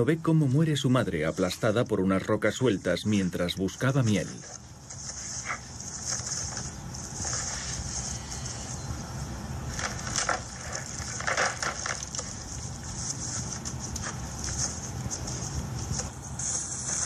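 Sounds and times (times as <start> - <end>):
steady hiss: 0.0 - 17.0
rocks tumbling down a slope: 3.7 - 8.7, 9.6 - 16.1.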